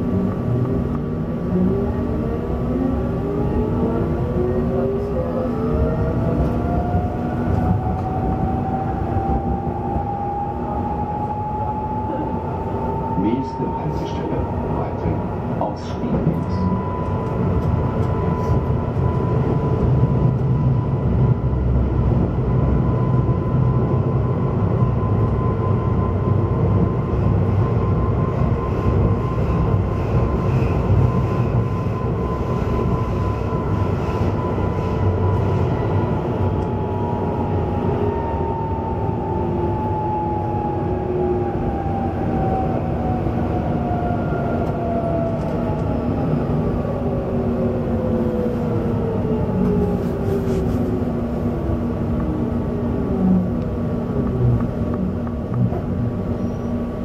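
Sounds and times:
wheels rumbling on track: 0.0s - 57.0s.

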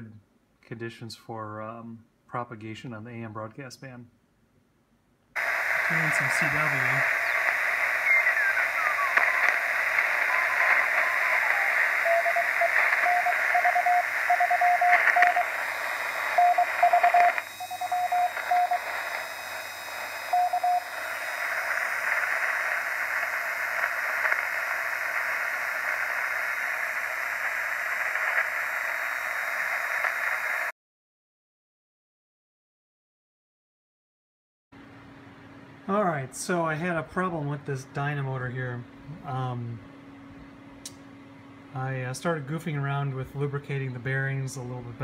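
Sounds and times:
radio static hiss: 5.4s - 30.7s
morse code beeps: 5.9s - 21.9s.

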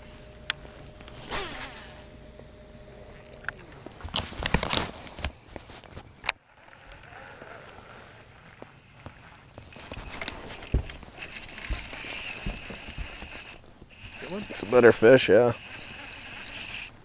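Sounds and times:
reel zipping clicks: 1.1s - 2.2s, 6.2s - 17.0s
fishing rod handling clicks: 6.2s - 17.0s.

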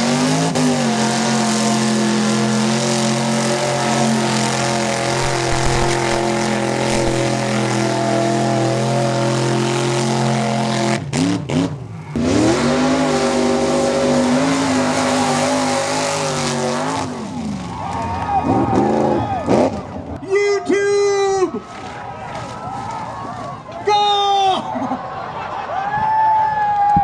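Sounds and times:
truck engine at full throttle: 0.0s - 20.2s.

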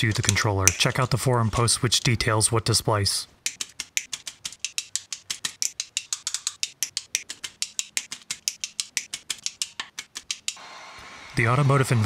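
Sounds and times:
wire strippers clicking and snipping: 0.0s - 2.1s, 3.4s - 10.6s
heat gun humming: 10.6s - 12.0s.

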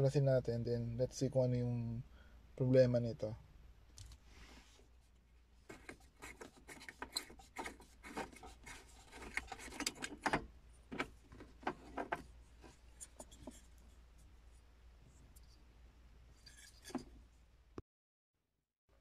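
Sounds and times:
plastic and metal clicks and scrapes: 5.7s - 13.9s, 16.4s - 17.2s.

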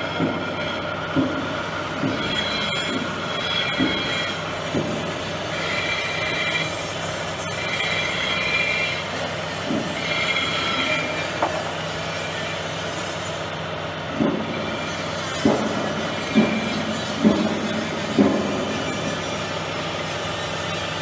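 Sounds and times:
cutter squealing on metal: 0.0s - 13.8s, 14.4s - 21.0s
machine hum: 0.0s - 21.0s.

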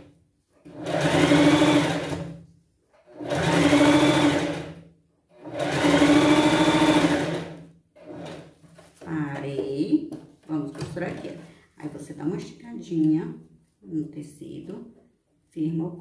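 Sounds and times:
sewing machine stitching: 0.6s - 8.6s.

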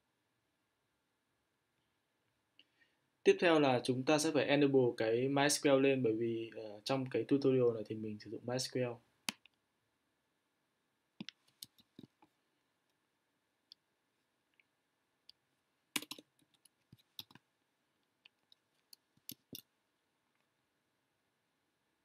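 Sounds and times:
mouse and keyboard clicks: 16.0s - 17.4s.

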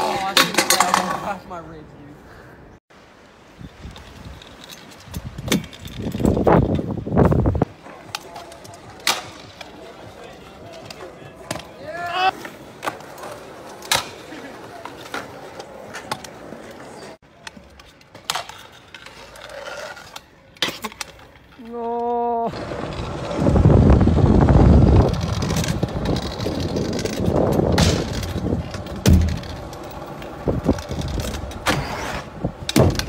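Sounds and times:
scooter deck clacking: 0.0s - 1.4s, 20.5s - 33.0s
scooter wheels rolling: 0.0s - 1.4s, 3.6s - 33.0s.

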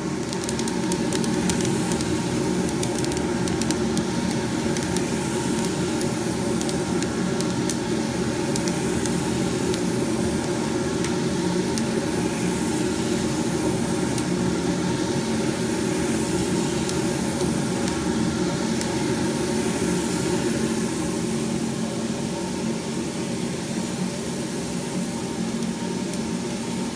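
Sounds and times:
coffee beans rustling and clicking: 0.0s - 14.4s, 15.4s - 20.5s
cooling fan and motor drone: 0.0s - 26.9s.

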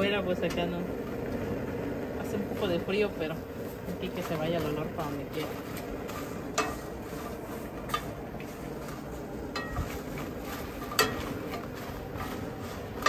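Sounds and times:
pots and utensils clinking: 3.8s - 13.0s.

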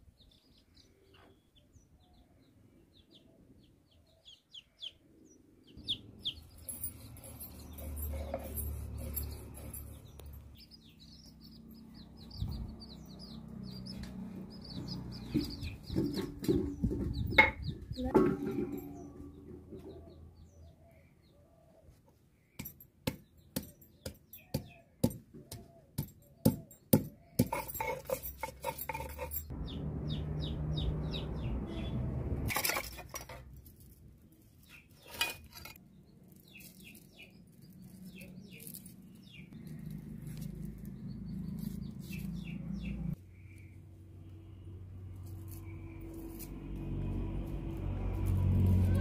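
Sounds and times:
small birds chirping: 0.0s - 28.2s, 29.3s - 32.1s, 34.2s - 44.7s
scraping on stone slab: 34.8s - 35.8s.

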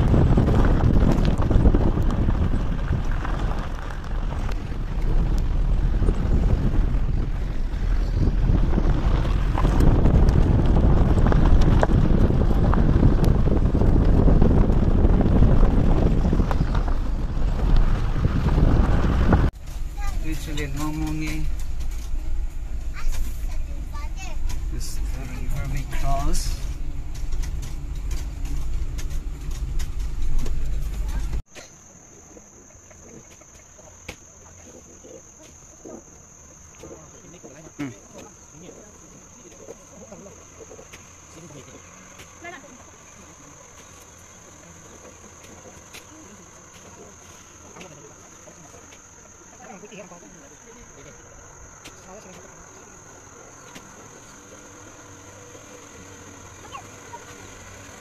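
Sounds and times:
stones clicking under wheels: 0.0s - 31.4s
wind buffeting microphone: 0.0s - 31.5s
road noise: 0.0s - 58.0s.

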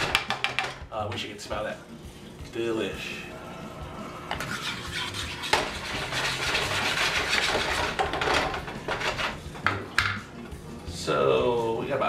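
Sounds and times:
wooden spoon scraping skillet: 4.3s - 9.4s.

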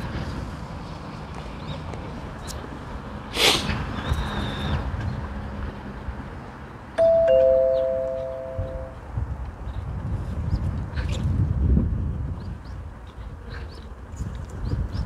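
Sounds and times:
two-note ding-dong chime: 7.0s - 9.0s.

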